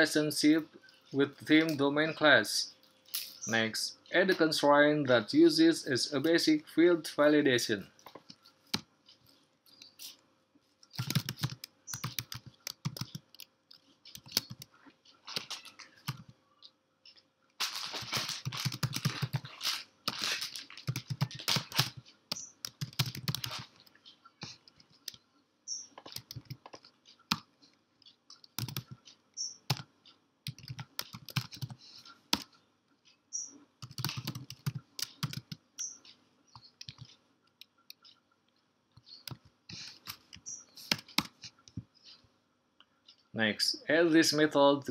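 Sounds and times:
computer keyboard typing: 0:10.9 - 0:14.7, 0:15.3 - 0:16.3, 0:17.9 - 0:27.5, 0:28.4 - 0:32.5, 0:33.8 - 0:35.9, 0:36.6 - 0:37.1, 0:39.2 - 0:41.4.

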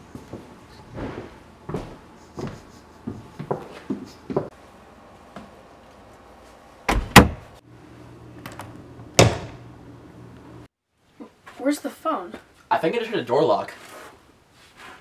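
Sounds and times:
wooden door banging shut: 0:06.9 - 0:07.5, 0:09.2 - 0:09.6.

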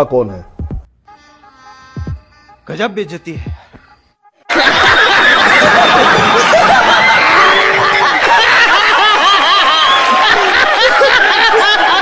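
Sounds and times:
audience laughing: 0:04.5 - 0:12.0.

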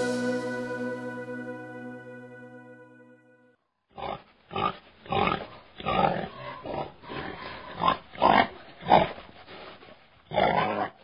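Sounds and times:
boar grunting: 0:04.0 - 0:09.2.

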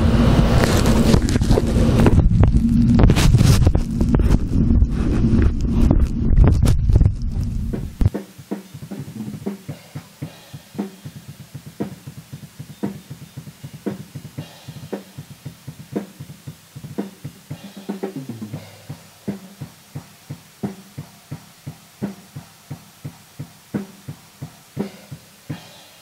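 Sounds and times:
muffled drum kit playing: 0:00.0 - 0:26.0
snare or cymbal strikes: 0:07.8 - 0:26.0.

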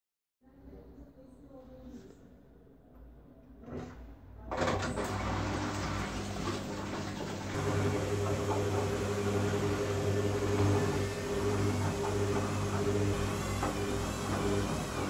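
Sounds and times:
washing machine motor humming: 0:03.6 - 0:15.0.

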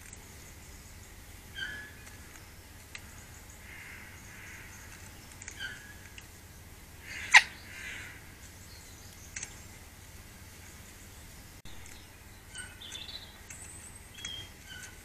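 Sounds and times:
small birds chirping: 0:00.0 - 0:15.0.

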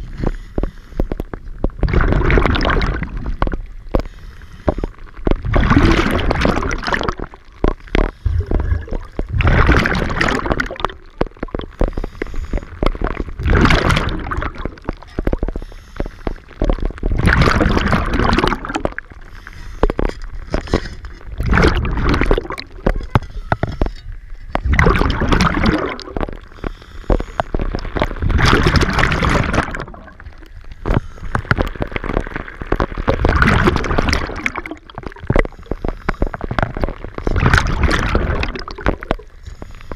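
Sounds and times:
exhaled bubbles rushing: 0:01.2 - 0:04.0, 0:04.9 - 0:39.4
diver inhaling through regulator: 0:11.8 - 0:12.8, 0:26.4 - 0:27.6.

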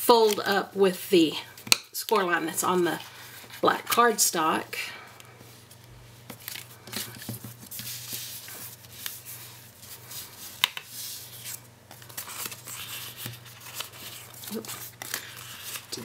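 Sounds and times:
cardstock folding and handling: 0:05.6 - 0:16.0.

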